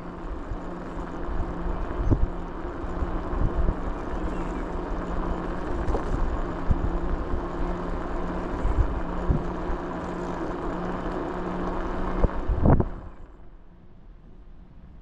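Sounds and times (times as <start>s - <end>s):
vehicle engine humming: 0.0s - 14.1s.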